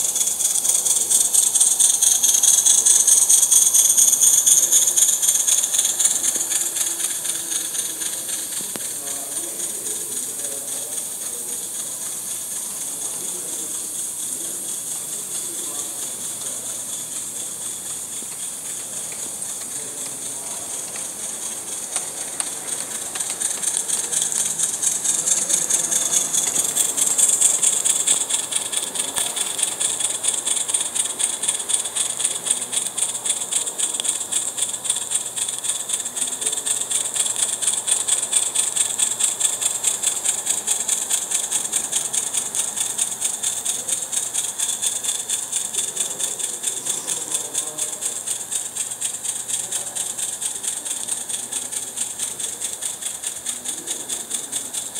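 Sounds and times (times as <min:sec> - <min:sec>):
steam hissing: 0:00.0 - 0:54.9
steam locomotive exhaust chuffing: 0:00.0 - 0:54.9.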